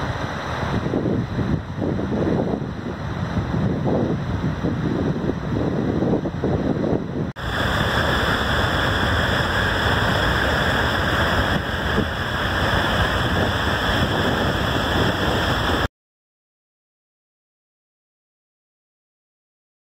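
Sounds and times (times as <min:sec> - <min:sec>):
high-pressure water jet rushing: 0:07.4 - 0:15.9.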